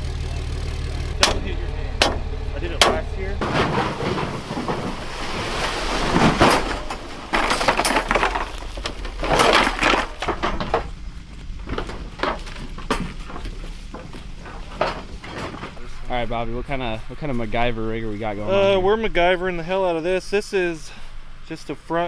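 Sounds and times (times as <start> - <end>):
steady low hum: 0.0 - 22.0
plastic decoys rustling and clattering: 3.0 - 16.3.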